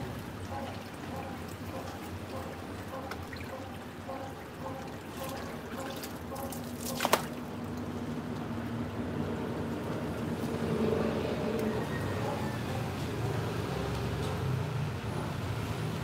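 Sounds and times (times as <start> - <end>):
hose water splashing on concrete: 0.7 - 8.5.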